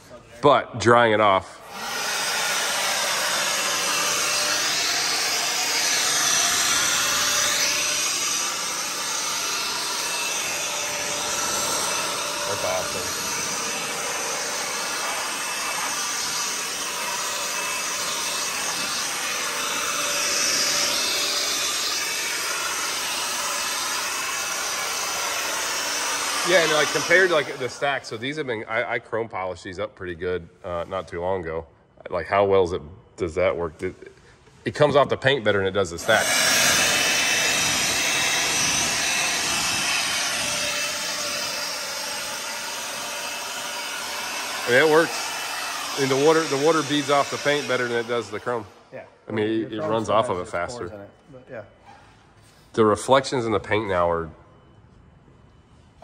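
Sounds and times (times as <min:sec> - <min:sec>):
motor whine: 0:01.6 - 0:28.1, 0:36.0 - 0:48.8
leaf blowers running: 0:01.6 - 0:28.2, 0:36.0 - 0:48.9.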